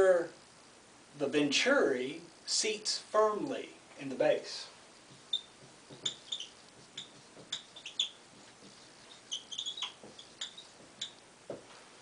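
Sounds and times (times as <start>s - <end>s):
marker squeaking on whiteboard: 5.0s - 11.7s
marker tapping: 5.0s - 11.7s.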